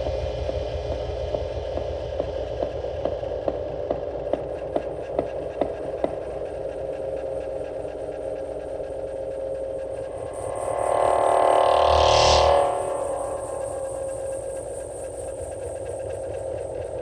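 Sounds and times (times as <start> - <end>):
humming electronic drone: 0.0 - 17.0.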